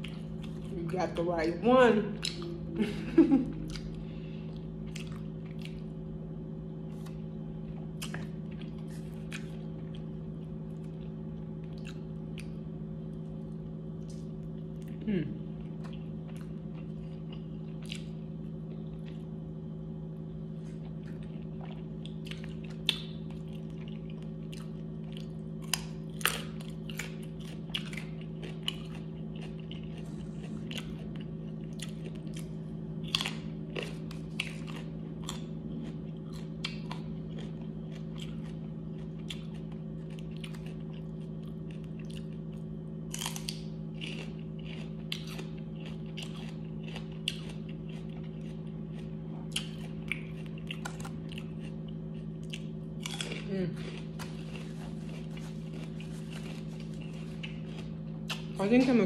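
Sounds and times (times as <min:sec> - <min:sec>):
person chewing and crunching: 0:00.0 - 0:01.3, 0:02.1 - 0:59.0
steady low hum: 0:00.0 - 0:59.0.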